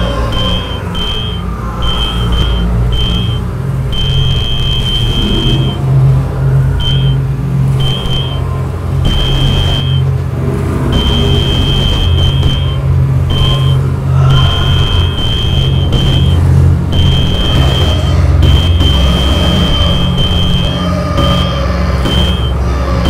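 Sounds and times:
high steady beep: 0:00.0 - 0:05.9, 0:06.7 - 0:10.2, 0:10.8 - 0:23.0
low rumbling drone: 0:00.0 - 0:23.0.

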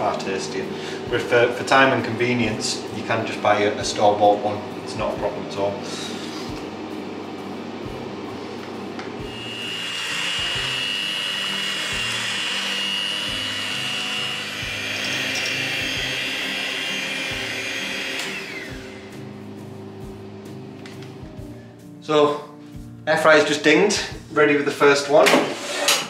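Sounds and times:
electric hand mixer whining: 0:09.1 - 0:19.3.

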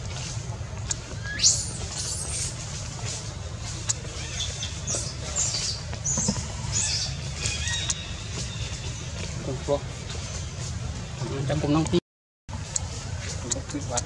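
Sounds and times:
baby monkey squeaking: 0:01.2 - 0:02.6, 0:04.1 - 0:09.0.

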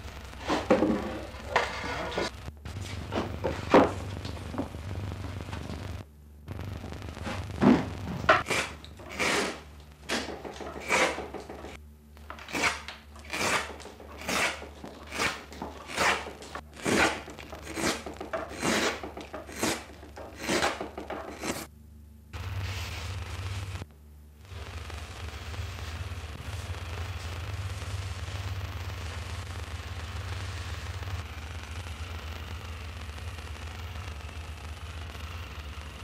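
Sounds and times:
gouge cutting wood: 0:08.4 - 0:11.8, 0:12.4 - 0:21.7.

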